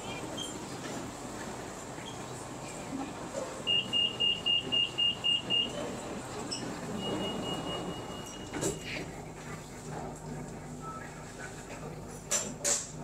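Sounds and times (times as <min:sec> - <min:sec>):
steady high warning tone: 0:03.6 - 0:09.0
quick high warning beeps: 0:03.7 - 0:05.9, 0:06.9 - 0:08.8.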